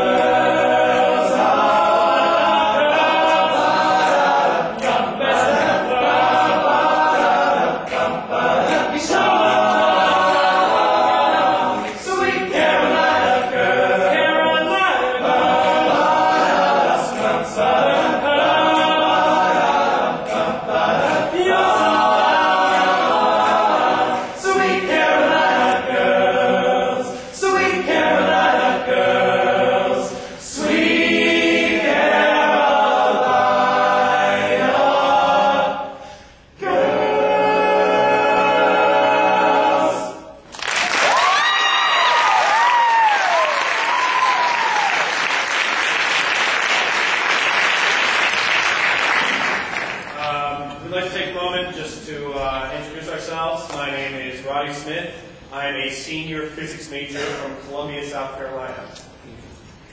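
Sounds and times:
male a cappella group singing: 0.0 - 40.4
singers breathing: 36.0 - 36.6.

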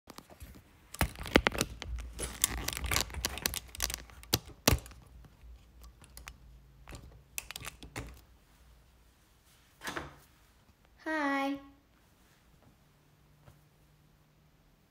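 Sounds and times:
phone handling clicks and rustles: 0.1 - 8.3.

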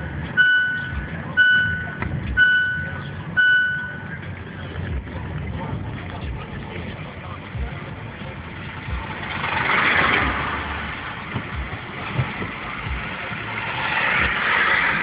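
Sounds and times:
vehicles passing: 0.0 - 15.0
low thumps: 8.7 - 15.0.

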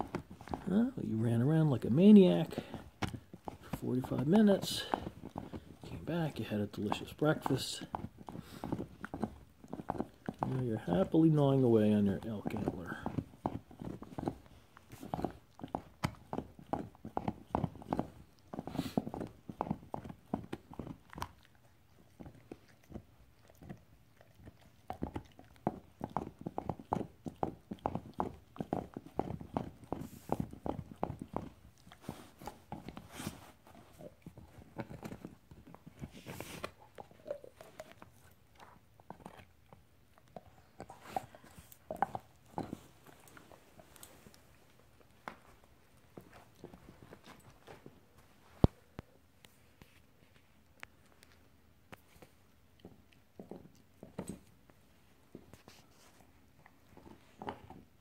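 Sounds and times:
puppy teeth gnawing antler: 0.0 - 58.0
dog teeth tapping on antler: 2.1 - 11.3, 12.2 - 21.6.

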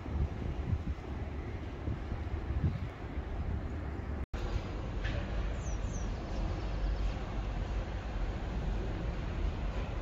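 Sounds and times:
wind buffeting microphone: 0.0 - 4.2.

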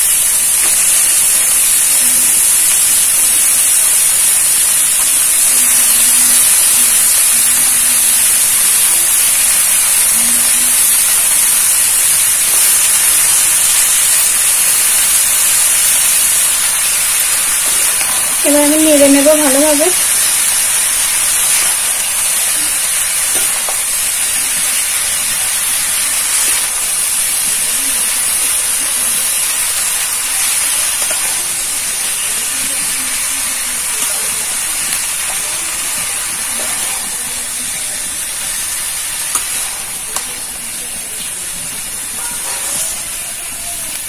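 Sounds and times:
food sizzling in hot oil: 0.0 - 44.0
metal spatula stirring: 31.0 - 31.5.

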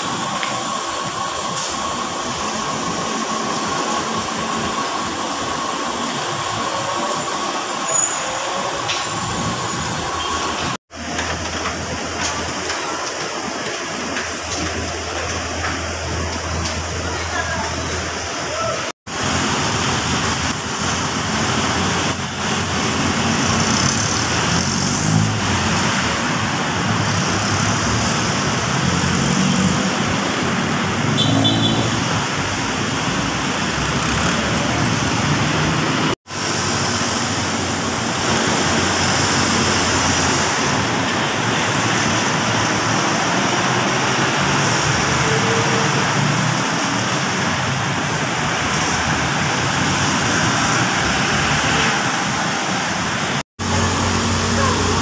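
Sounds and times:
cars passing: 19.1 - 55.0
motorcycles passing: 21.4 - 36.2, 37.0 - 55.0.

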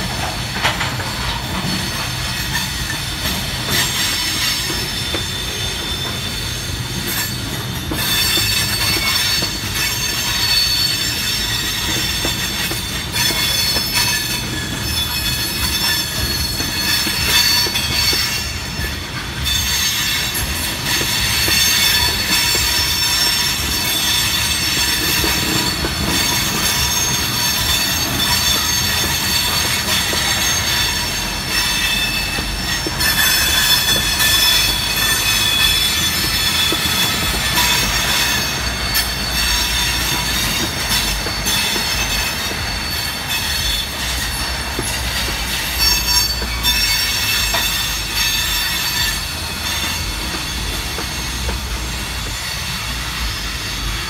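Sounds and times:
train wheels rumbling on rails: 0.0 - 54.0
high-pitched wheel squeal: 3.7 - 54.0.

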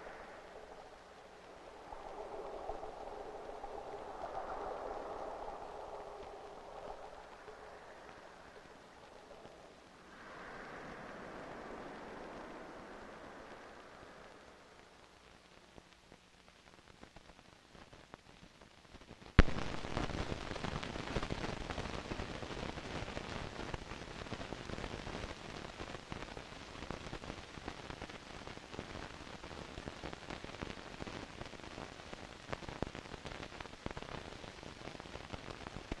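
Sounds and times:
film crackle and hiss: 0.0 - 36.0
sharp pop: 19.4 - 20.1.

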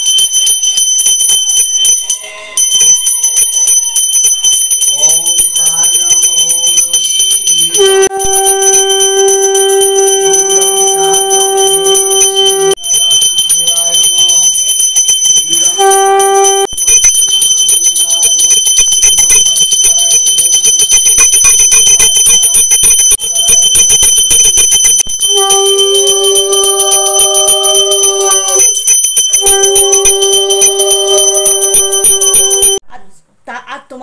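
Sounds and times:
hand bell jangling: 0.0 - 32.8
conch shell blasts: 7.8 - 12.8, 15.8 - 16.8, 25.1 - 28.7, 29.4 - 32.8.

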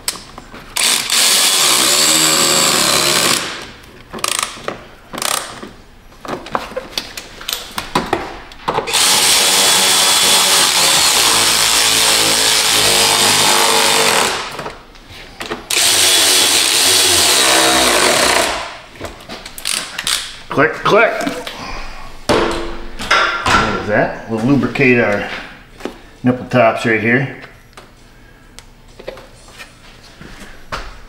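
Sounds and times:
electric ratchet driving fasteners: 0.8 - 5.6, 8.9 - 14.7, 15.7 - 18.8, 19.6 - 20.4.

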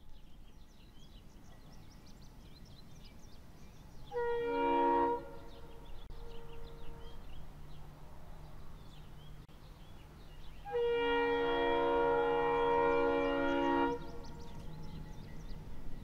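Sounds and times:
birds chirping: 0.0 - 16.0
locomotive air horn blast: 4.1 - 7.4, 10.6 - 14.6.

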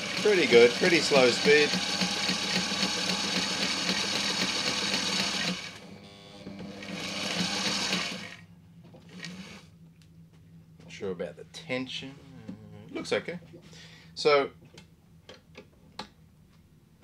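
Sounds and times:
sewing machine stitching: 0.0 - 5.8, 6.5 - 8.4, 9.1 - 9.7.

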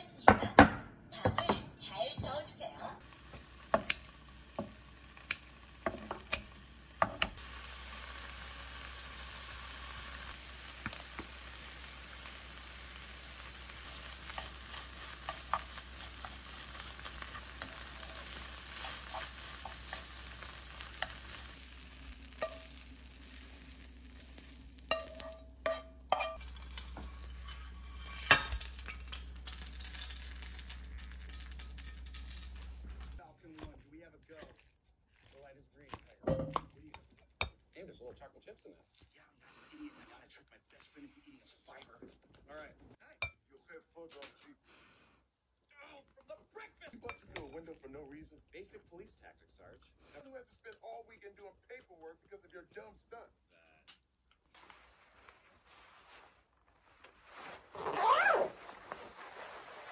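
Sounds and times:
utensil stirring and tapping pan: 3.0 - 7.4, 10.4 - 37.6
food sizzling in a frying pan: 3.0 - 33.7.

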